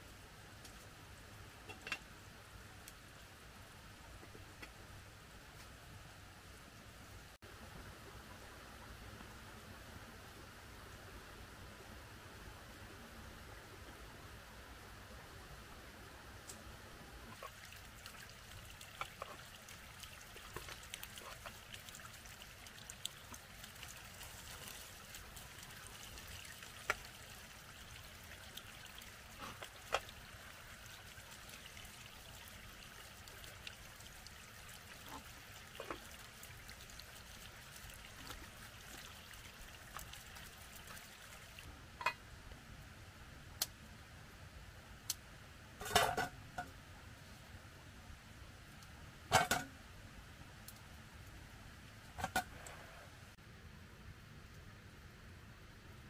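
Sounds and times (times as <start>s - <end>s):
water trickling: 17.3s - 41.7s.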